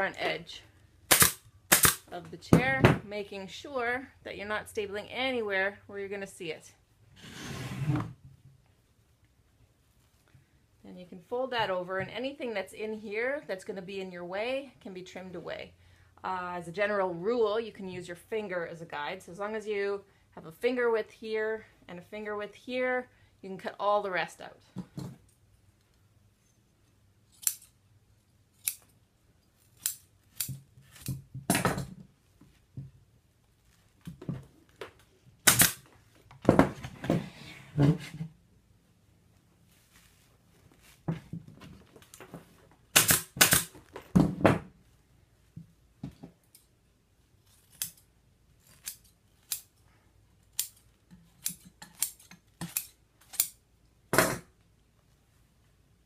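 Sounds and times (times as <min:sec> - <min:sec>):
scissors snipping: 0:29.6 - 0:31.2, 0:47.4 - 0:49.7.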